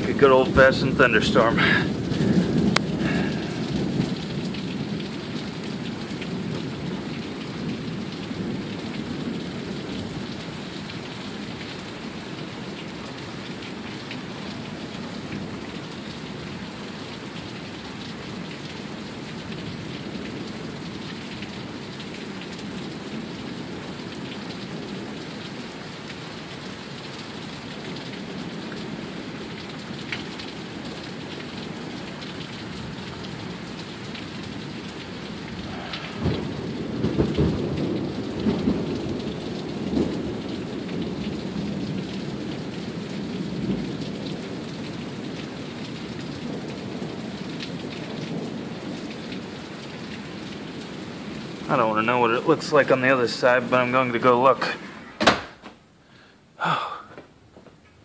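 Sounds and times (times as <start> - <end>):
thunder rumbling: 0.0 - 5.1, 34.7 - 42.4
heavy rain pouring: 0.0 - 58.0.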